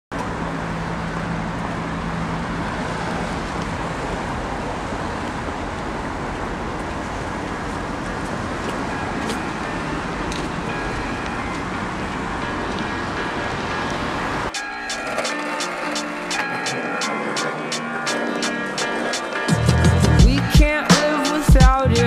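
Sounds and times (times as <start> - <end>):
road traffic rush: 0.1 - 22.0.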